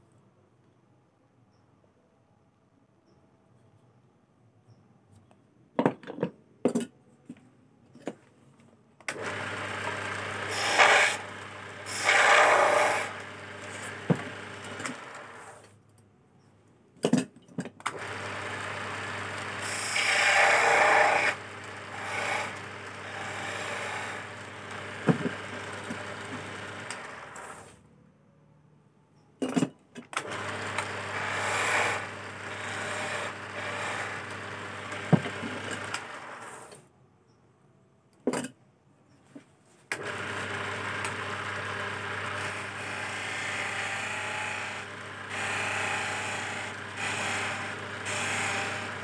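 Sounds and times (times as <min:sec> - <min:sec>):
lathe motor humming: 0:09.2 - 0:15.4, 0:18.0 - 0:27.4, 0:30.3 - 0:36.4, 0:40.0 - 0:49.0
tool scraping spinning wood: 0:09.2 - 0:15.7, 0:18.0 - 0:27.8, 0:30.2 - 0:36.8, 0:40.0 - 0:49.0.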